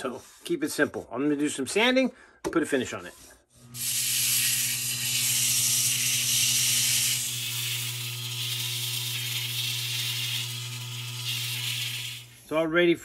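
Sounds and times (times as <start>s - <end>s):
sandpaper sanding hiss: 3.1s - 12.4s.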